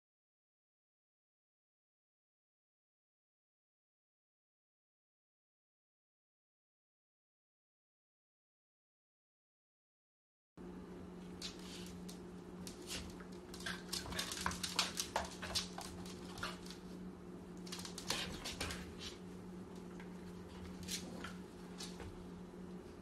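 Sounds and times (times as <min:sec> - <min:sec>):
dog claws clicking on floor: 0:11.4 - 0:16.9, 0:17.6 - 0:19.2.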